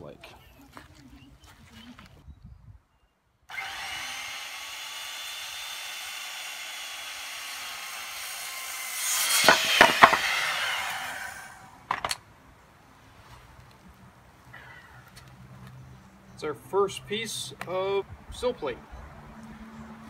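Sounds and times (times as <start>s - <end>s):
circular saw cutting wood: 3.5s - 12.1s
wood cracking: 9.1s - 12.2s
quick knocks: 9.4s - 10.3s.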